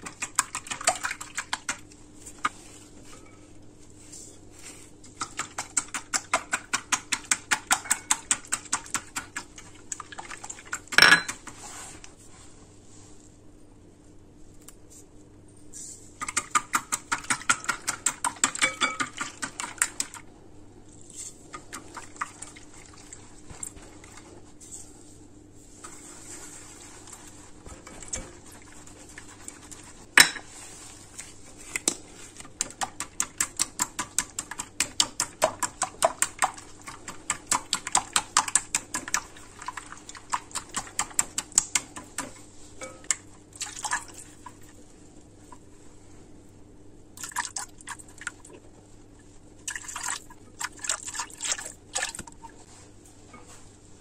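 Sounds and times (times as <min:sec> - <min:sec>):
whisk ticking against glass bowl: 0:05.2 - 0:09.7, 0:16.2 - 0:20.2, 0:32.6 - 0:43.2.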